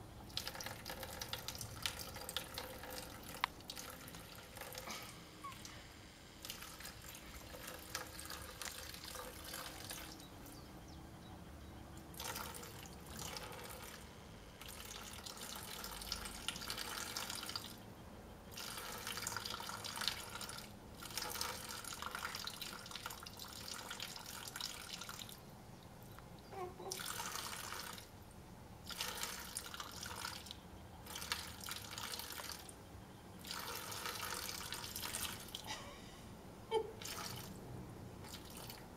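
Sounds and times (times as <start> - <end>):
water pouring from watering can: 0.2 - 5.2, 6.4 - 10.3, 12.1 - 17.8, 18.5 - 25.4, 26.9 - 28.1, 28.8 - 32.8, 33.4 - 35.7, 37.0 - 37.6, 38.2 - 38.9
water splashing into basin: 38.2 - 38.9.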